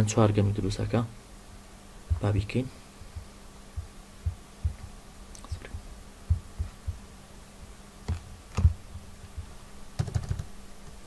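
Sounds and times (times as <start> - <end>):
low electrical hum: 0.0 - 11.0
keyboard and mouse clicks: 8.1 - 8.8, 10.0 - 10.5.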